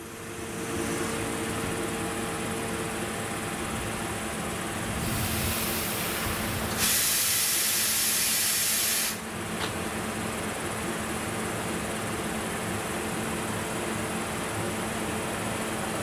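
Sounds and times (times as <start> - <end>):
train idling hum: 0.0 - 16.0
compressed air hissing: 5.0 - 9.2.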